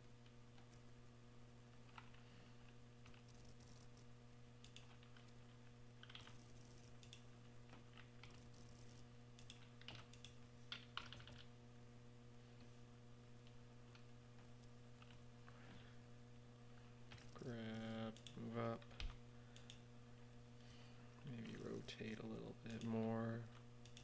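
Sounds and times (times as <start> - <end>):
low electrical hum: 0.0 - 24.0
mouse clicks: 4.6 - 5.3, 7.0 - 7.2, 9.4 - 11.4, 18.1 - 19.8.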